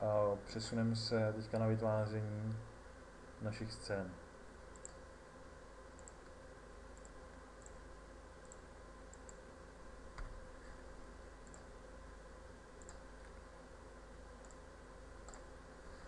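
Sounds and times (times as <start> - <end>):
faint steady hum: 0.0 - 16.0
computer mouse clicks: 4.7 - 5.0, 5.9 - 7.8, 8.4 - 9.5, 11.4 - 11.7, 12.8 - 13.4, 14.4 - 14.6, 15.2 - 15.5.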